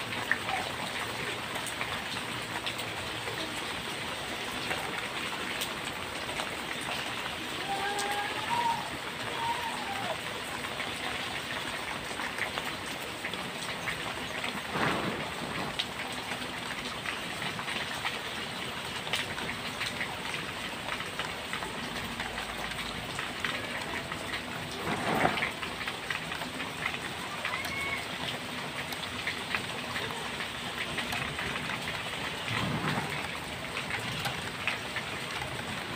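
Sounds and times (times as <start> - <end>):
heavy rain on mud and puddles: 0.0 - 35.9.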